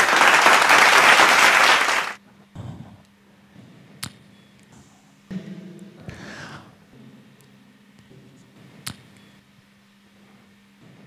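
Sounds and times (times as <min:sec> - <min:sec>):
audience applause: 0:00.0 - 0:02.2.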